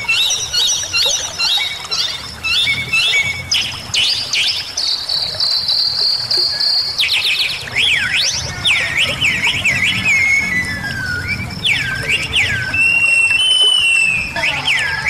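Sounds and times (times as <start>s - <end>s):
bird chirps and whistles: 0.0s - 15.0s
running water hiss: 0.0s - 15.0s.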